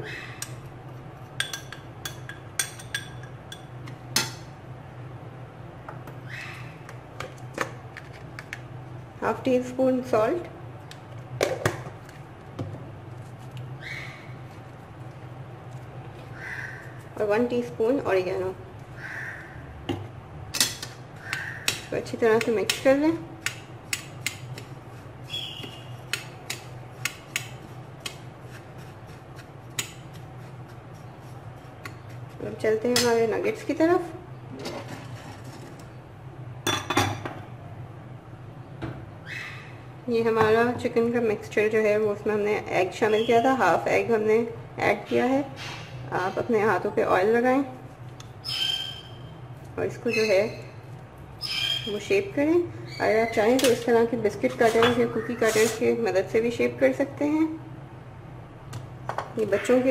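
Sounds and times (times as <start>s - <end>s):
spoon scraping breadcrumbs: 24.0s - 32.6s.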